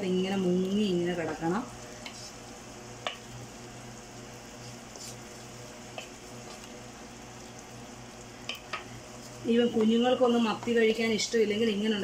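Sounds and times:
sauce sizzling in a pan: 0.0 - 12.0
wooden spoon clicking on pan: 3.0 - 3.3, 8.4 - 8.9.

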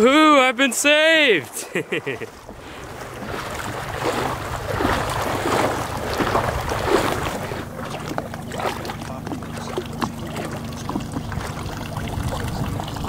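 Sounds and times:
water splashing against hull: 0.0 - 13.0
outboard motor drone: 1.6 - 13.0
wind on microphone: 10.9 - 13.0.

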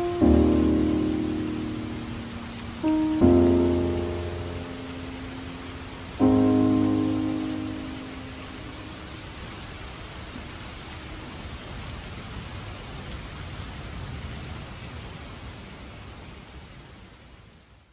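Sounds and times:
held music chord: 0.0 - 9.1
steady rain falling: 0.0 - 17.9.

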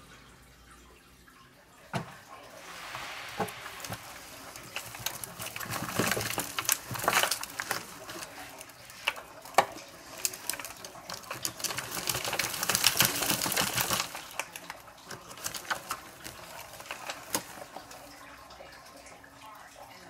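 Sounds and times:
leaves brushing: 2.6 - 14.4
soil crackling and rustling: 2.6 - 18.2
roots tearing: 3.7 - 17.5.

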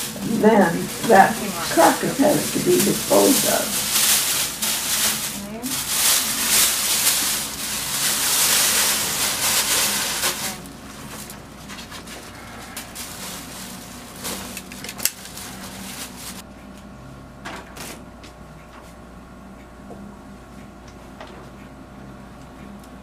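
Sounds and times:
plastic sheeting rustling: 0.0 - 16.4.

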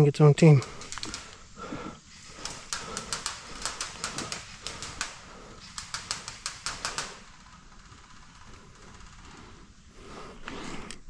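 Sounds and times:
airsoft gunfire: 2.3 - 7.4.

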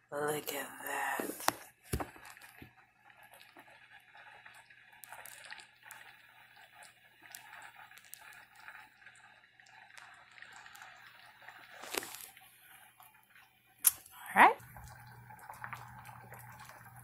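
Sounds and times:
soup simmering with bubbling: 0.9 - 17.0
bubbles popping: 1.9 - 12.3, 14.6 - 17.0.

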